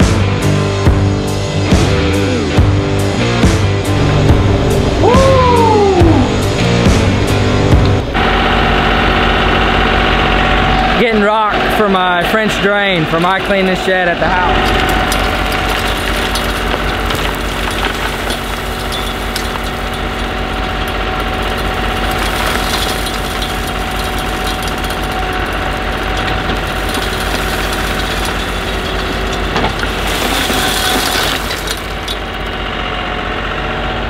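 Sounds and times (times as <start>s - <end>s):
tractor diesel engine running: 0.5s - 34.0s
gravel rattling into cargo bed: 12.3s - 32.8s.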